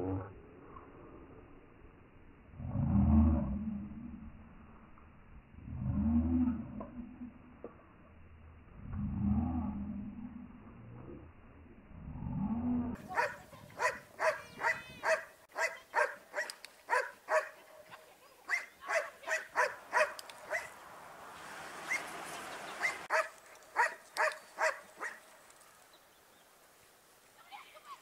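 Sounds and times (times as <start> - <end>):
small dog barking: 13.0 - 20.8, 22.8 - 25.2.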